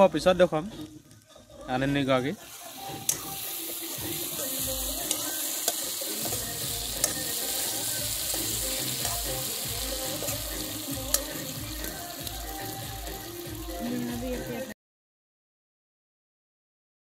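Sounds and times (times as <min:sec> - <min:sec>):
vegetables sizzling in a wok: 0:00.0 - 0:14.8
metal spatula stirring: 0:02.4 - 0:12.0.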